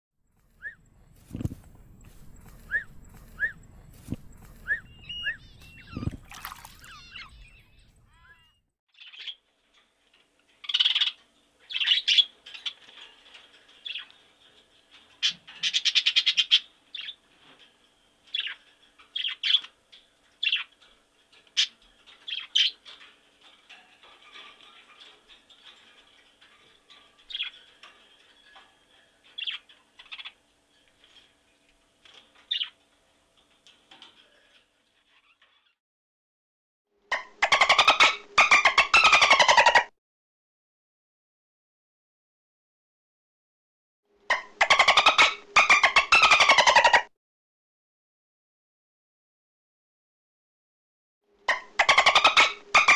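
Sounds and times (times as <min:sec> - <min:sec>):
macaw squawking: 0:00.5 - 0:09.4, 0:37.1 - 0:39.9, 0:44.3 - 0:47.1, 0:51.5 - 0:52.9.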